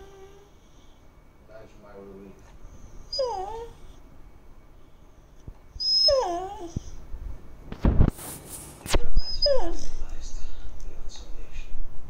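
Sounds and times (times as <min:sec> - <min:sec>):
dog whimpering: 0:00.0 - 0:00.8, 0:02.8 - 0:04.0, 0:05.7 - 0:07.0, 0:09.0 - 0:10.1
noisy rustle: 0:07.0 - 0:09.2.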